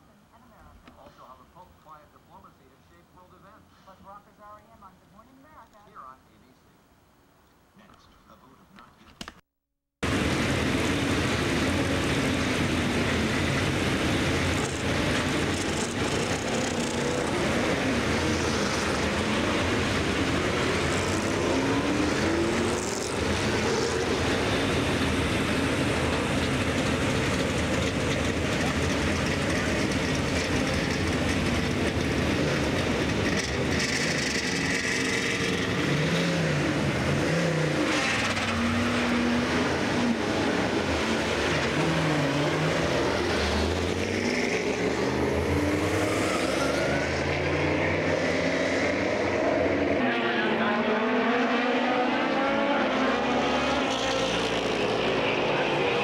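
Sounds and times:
race car engines revving: 10.0 - 56.0.

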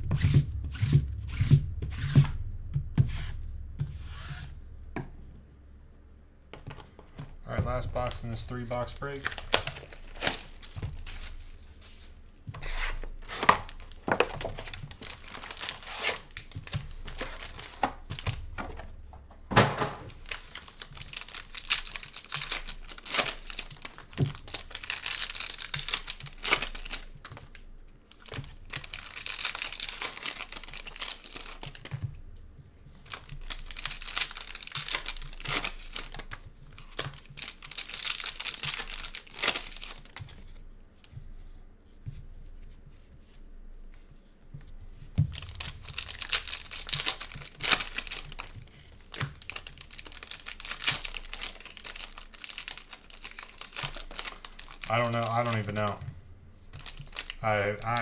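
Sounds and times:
plastic wrappers crinkling: 6.5 - 19.0, 20.0 - 32.2, 32.9 - 40.6, 45.2 - 58.0.

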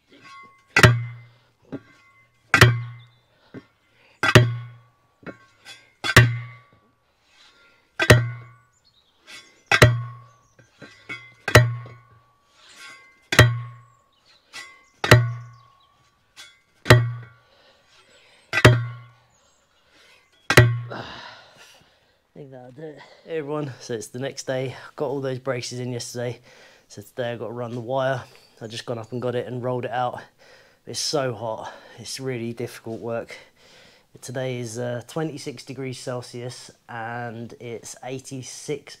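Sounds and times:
post driver thudding on post: 0.3 - 3.1, 4.2 - 6.8, 8.0 - 8.6, 9.7 - 12.1, 13.3 - 13.8, 14.6 - 15.6, 16.8 - 17.4, 18.6 - 19.1, 20.5 - 21.0.

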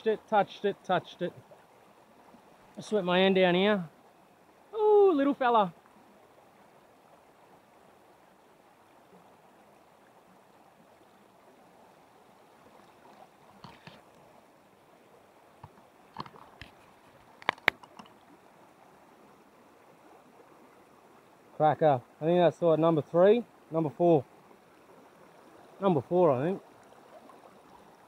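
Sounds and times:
creek flowing: 0.0 - 28.0.

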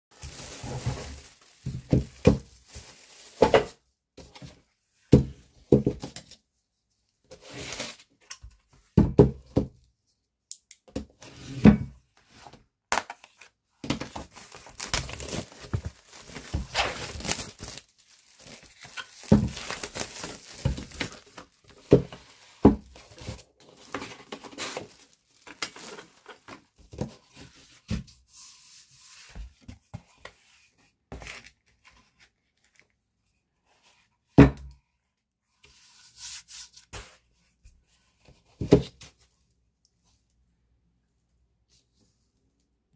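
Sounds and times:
plastic wrapping rustling and tearing: 0.1 - 3.8, 13.3 - 27.0.

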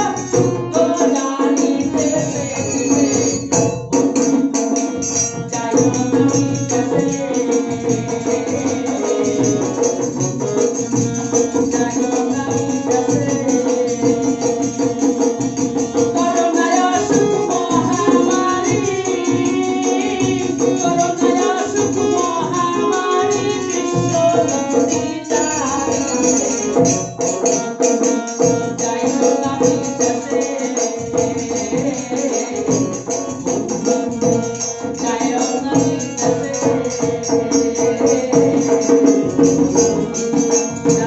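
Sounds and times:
barrel drum beat: 0.0 - 41.0
man singing folk song: 11.7 - 14.2.

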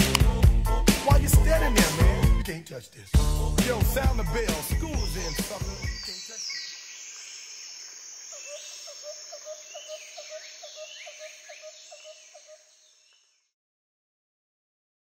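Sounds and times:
woodland birds calling: 3.5 - 13.5.

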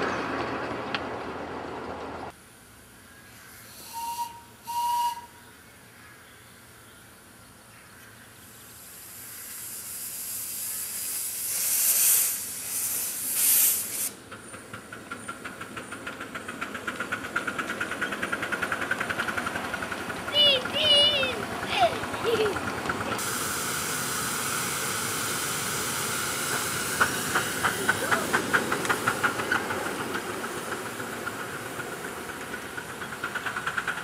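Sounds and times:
steam hissing: 3.6 - 5.3, 8.5 - 14.3, 23.1 - 34.0
steam locomotive chuffing: 3.7 - 5.4, 8.8 - 34.0
steam whistle toots: 3.7 - 5.4.

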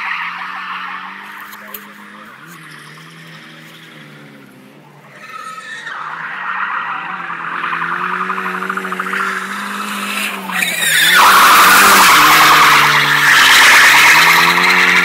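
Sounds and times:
car engine revving high: 0.0 - 15.0
tyres squealing: 5.1 - 15.0.

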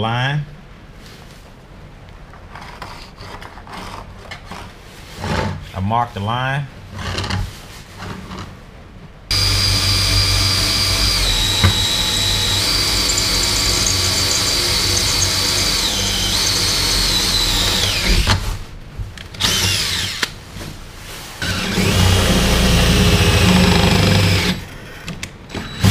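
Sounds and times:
power drill whining: 9.3 - 18.4, 19.4 - 20.3, 21.4 - 24.7, 25.5 - 25.9.

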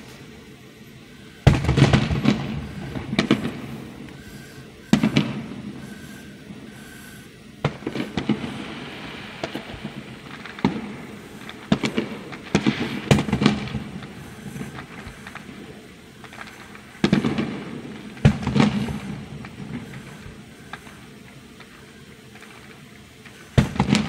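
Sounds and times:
firework bangs and crackling: 0.0 - 24.0
firework shells booming: 0.0 - 24.0.

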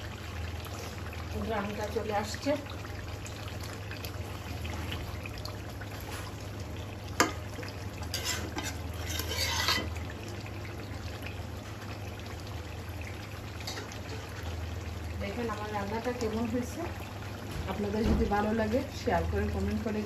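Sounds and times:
spatula clanking against pan: 8.1 - 9.9
metal spatula scraping a pan: 8.1 - 10.0, 13.6 - 14.3.

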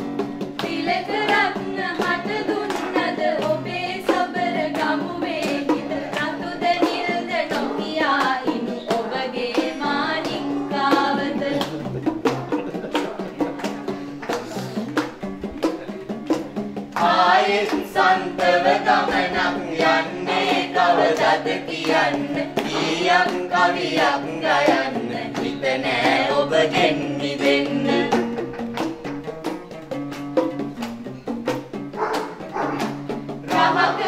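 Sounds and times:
acoustic guitar: 0.0 - 34.0
hand drum beat: 0.0 - 34.0
group singing: 0.4 - 13.0, 17.0 - 28.9, 32.2 - 34.0.

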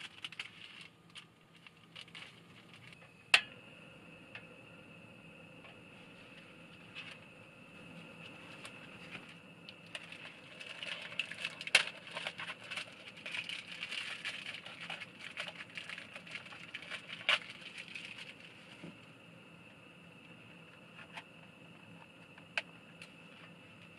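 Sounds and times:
plastic packaging crinkling: 0.0 - 3.0, 9.8 - 18.6
gas stove burner hissing: 1.0 - 23.9.

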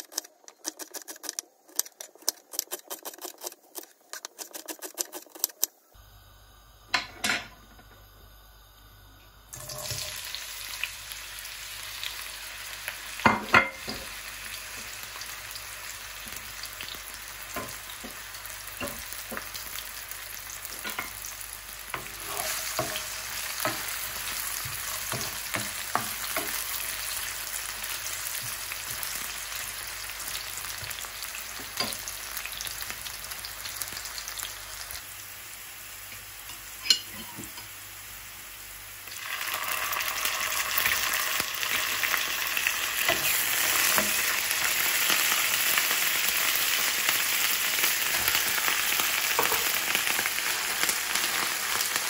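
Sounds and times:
onions sizzling in oil: 8.0 - 52.0
wooden spoon scraping pan: 22.0 - 23.8.

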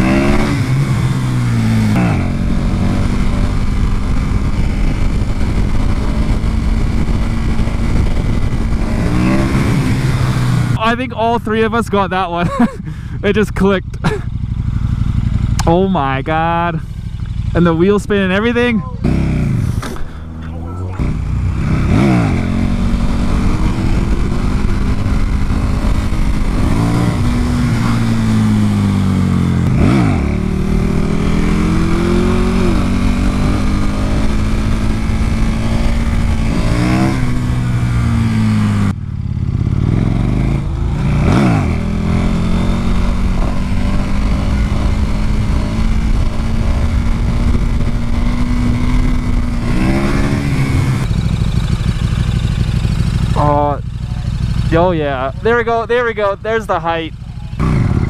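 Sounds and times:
motorcycle throttle blips: 12.9 - 58.0
wind rush: 18.2 - 29.9.

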